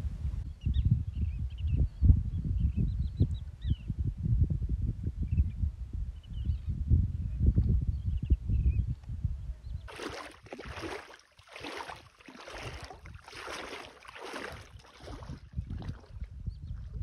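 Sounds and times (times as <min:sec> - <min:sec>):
wind rumble on microphone: 0:00.0 - 0:17.0
footsteps wading through shallow water: 0:09.9 - 0:17.0.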